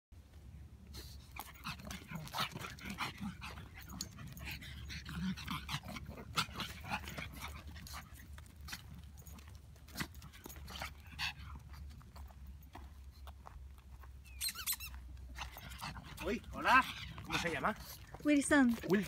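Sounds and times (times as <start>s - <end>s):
paws scuffing on pebbly dirt: 0.3s - 19.0s
small dog vocal sounds: 1.0s - 9.3s, 14.4s - 18.2s.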